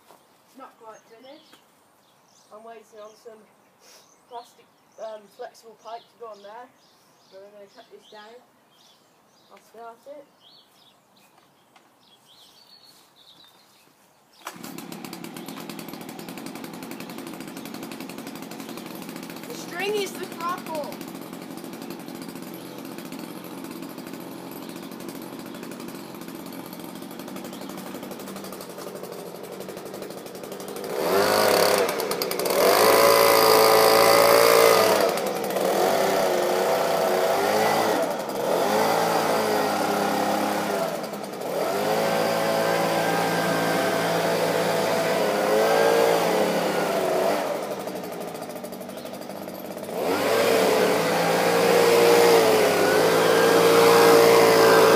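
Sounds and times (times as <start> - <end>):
leaf blower engine revving: 14.4 - 54.9.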